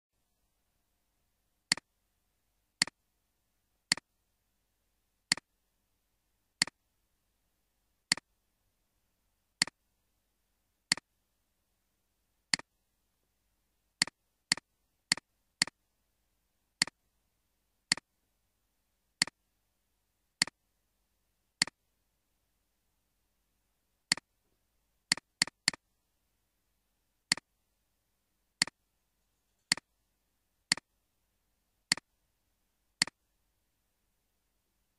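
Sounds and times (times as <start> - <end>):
computer mouse clicks: 3.9 - 4.1, 10.9 - 11.1, 14.0 - 15.8, 17.9 - 18.1, 24.1 - 24.3, 25.1 - 25.8, 27.3 - 27.5, 29.6 - 29.9, 30.7 - 30.9, 31.9 - 32.1.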